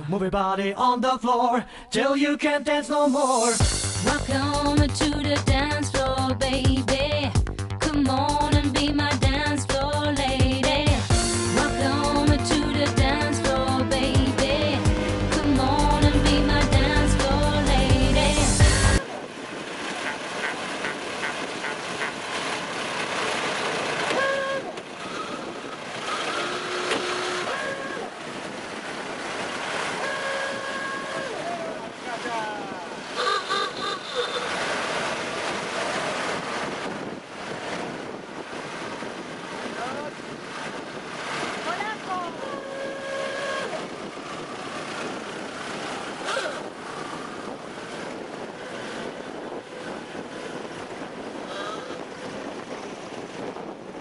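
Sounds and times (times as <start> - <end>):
old car engines running: 3.6 - 30.9, 31.8 - 54.0
wind noise on microphone: 23.7 - 54.0
short car horn toots: 24.1 - 24.7, 26.4 - 28.1, 30.0 - 31.4, 33.2 - 34.5.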